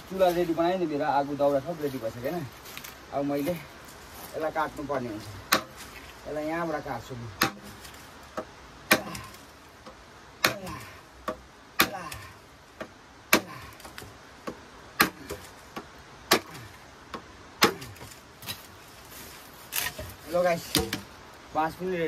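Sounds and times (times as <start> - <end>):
blade chopping bamboo: 5.4 - 6.0, 7.4 - 18.6, 19.7 - 21.1.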